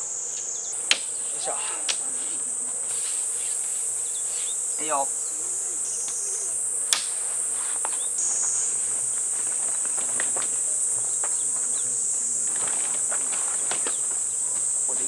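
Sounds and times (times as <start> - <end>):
insects droning: 0.0 - 15.0
sharp click: 6.9 - 7.1.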